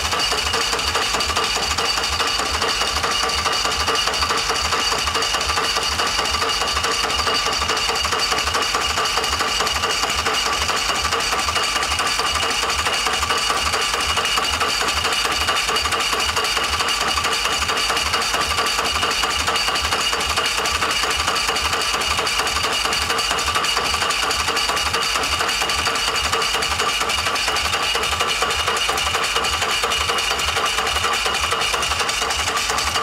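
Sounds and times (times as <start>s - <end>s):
starter motor cranking engine: 0.0s - 33.0s.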